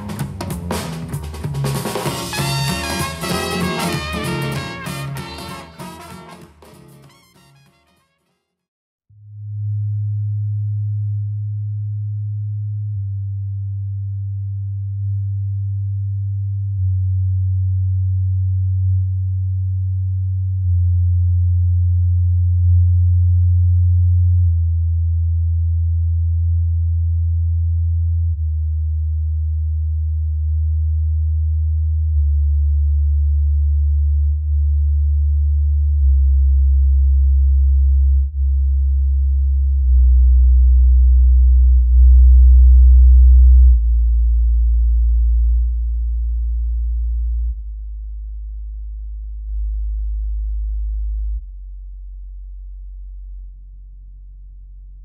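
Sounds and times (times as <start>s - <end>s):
low sine tone through speakers: 9.1s - 55.0s.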